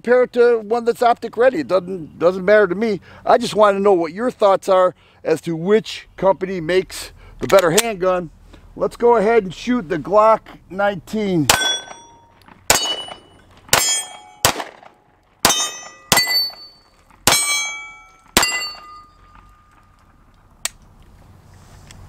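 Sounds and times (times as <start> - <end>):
pistol shots: 11.5 - 12.1, 12.7 - 19.0
steel targets ringing: 11.5 - 20.0.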